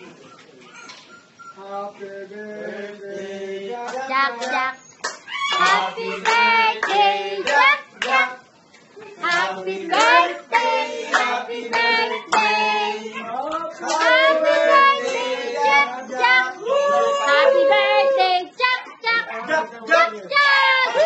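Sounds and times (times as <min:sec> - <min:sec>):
group singing: 0:01.6 - 0:08.6, 0:09.2 - 0:18.8
hands clapping: 0:03.9 - 0:08.2, 0:09.2 - 0:12.5, 0:13.4 - 0:14.2.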